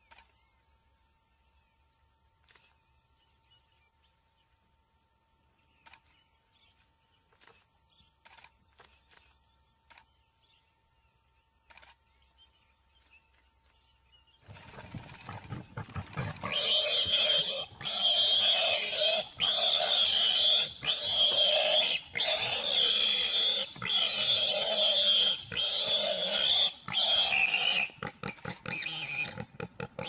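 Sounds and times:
camera shutter clicks: 11.7 - 12.0.

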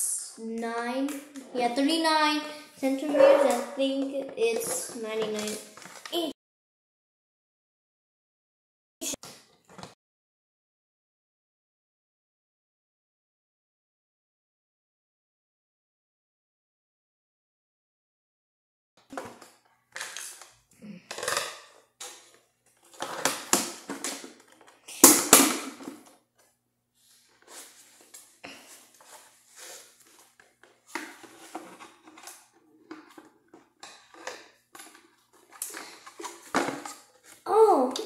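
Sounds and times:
packaging rustling and crinkling: 4.6 - 6.2, 19.2 - 24.9, 27.0 - 37.5.

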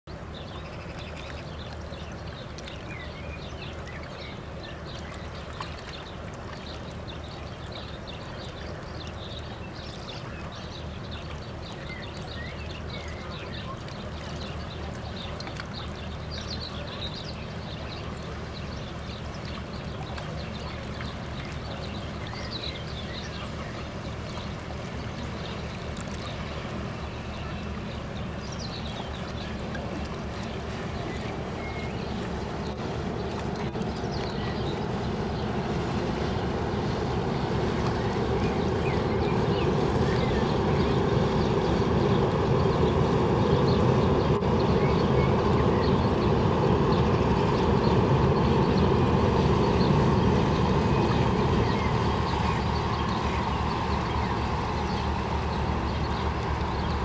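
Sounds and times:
water washing along hull: 0.1 - 57.0
ship engine drone: 11.5 - 57.0.

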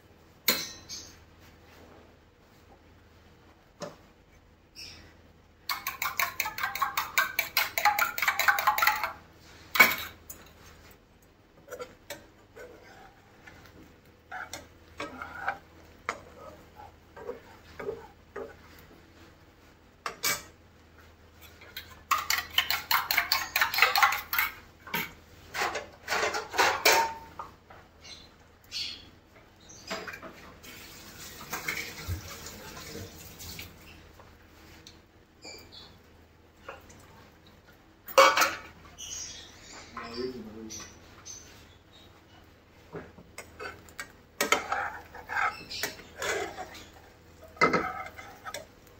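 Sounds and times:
metal spoon scraping frying pan: 5.7 - 10.5, 11.7 - 13.7, 14.3 - 18.6, 21.4 - 27.3, 43.4 - 48.7.

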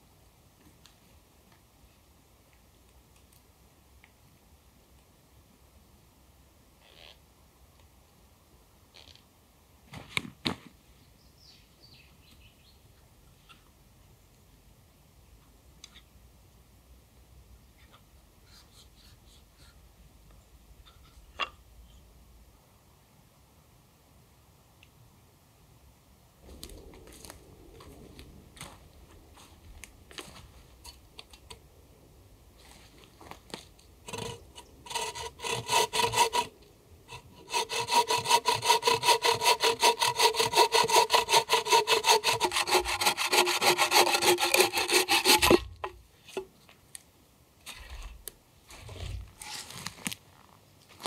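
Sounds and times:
saw rasping through log: 34.1 - 36.5, 37.1 - 45.9.

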